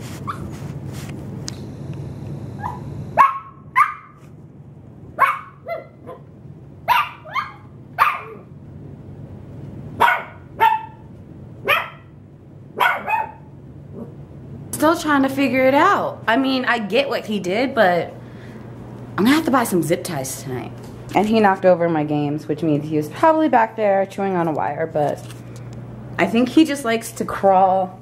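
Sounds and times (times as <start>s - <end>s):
puppy barking: 0.2s - 0.5s, 2.6s - 4.2s, 5.2s - 6.3s, 6.9s - 8.5s, 10.0s - 12.2s, 12.8s - 14.1s.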